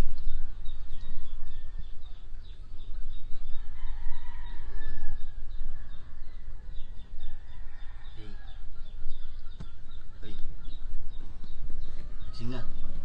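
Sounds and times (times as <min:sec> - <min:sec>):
rooster crowing: 0:03.5 - 0:09.2.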